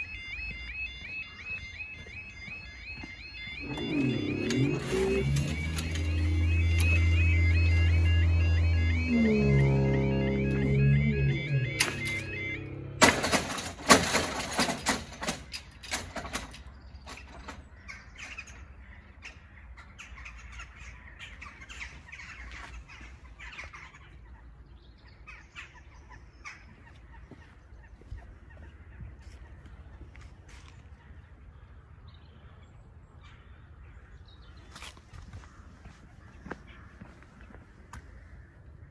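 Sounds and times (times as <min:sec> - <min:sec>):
birds calling: 0:00.0 - 0:38.9
loud clicks and knocks: 0:13.0 - 0:17.6
crow-like caws: 0:31.0 - 0:34.3, 0:35.2 - 0:38.9.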